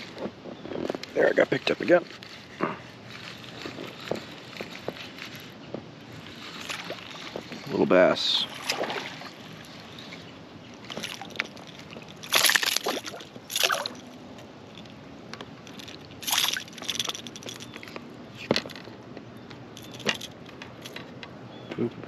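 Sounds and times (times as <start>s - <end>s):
water splashing and sloshing: 3.2s - 17.9s.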